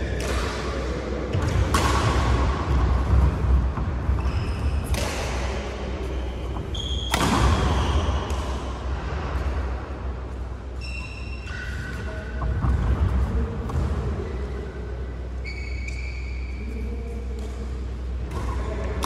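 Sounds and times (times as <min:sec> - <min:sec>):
steady low hum: 0:00.0 - 0:19.0
racket striking shuttlecock: 0:00.2 - 0:08.8
shoe squeaks on court floor: 0:04.2 - 0:04.9, 0:06.1 - 0:08.2, 0:10.7 - 0:12.4, 0:15.4 - 0:16.6.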